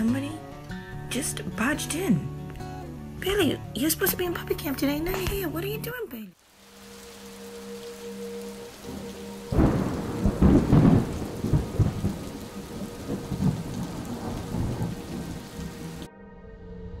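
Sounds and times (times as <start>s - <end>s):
heavy rain: 5.2s - 16.1s
thunder rumbling: 7.2s - 16.1s.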